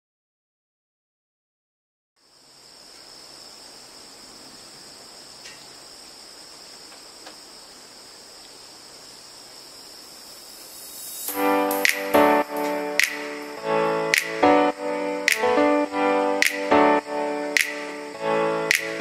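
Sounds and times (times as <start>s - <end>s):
faint hiss: 2.2s - 19.0s
faint ticks: 8.4s - 8.6s
high-pitched insect drone: 8.6s - 19.0s.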